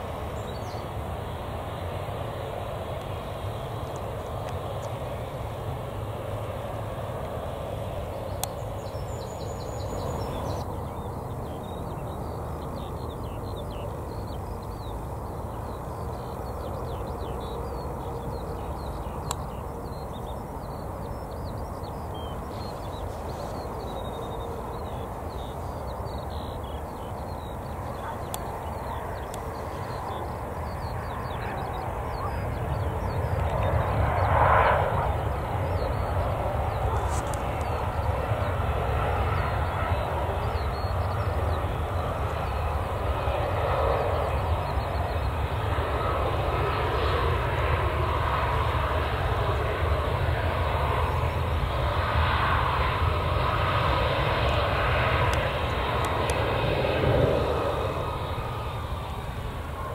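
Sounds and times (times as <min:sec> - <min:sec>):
jet engine rumble: 0:00.0 - 0:59.9.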